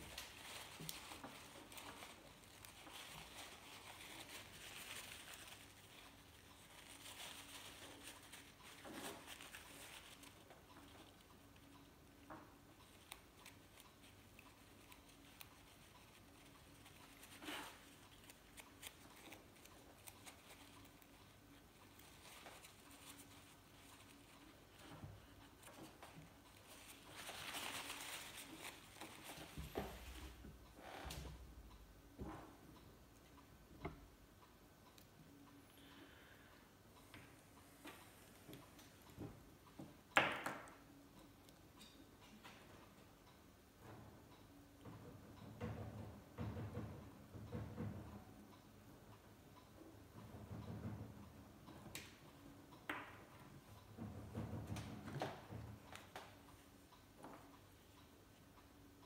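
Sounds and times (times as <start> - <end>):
paper towel crinkling: 0.0 - 10.4, 26.6 - 30.2
soft gas hiss: 0.0 - 40.1.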